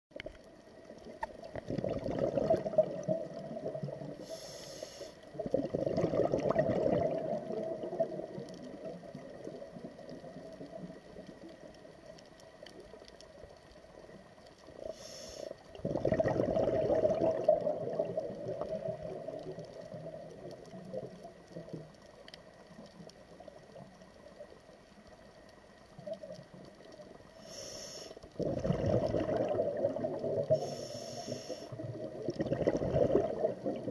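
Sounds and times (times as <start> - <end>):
quiet water noise: 0.1 - 33.9
bubbling exhalations: 1.4 - 4.1, 5.3 - 8.8, 15.8 - 19.4, 28.4 - 30.8, 31.7 - 33.9
hissing regulator inhalations: 4.2 - 5.3, 14.8 - 15.6, 27.4 - 28.3, 30.5 - 31.8.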